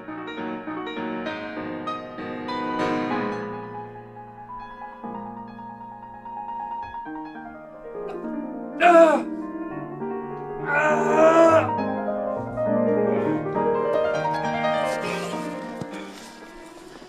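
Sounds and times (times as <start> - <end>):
piano music: 0.0 - 17.0
man crying out: 8.8 - 9.3, 10.6 - 11.8.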